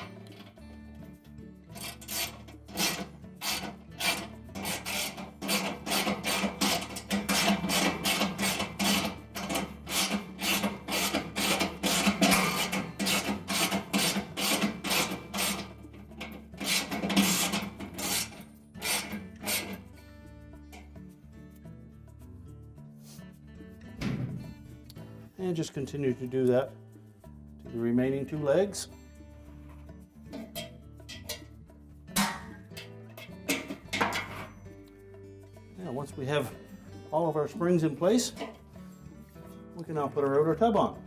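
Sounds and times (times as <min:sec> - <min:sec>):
ratchet wrench clicking: 0:01.8 - 0:15.7.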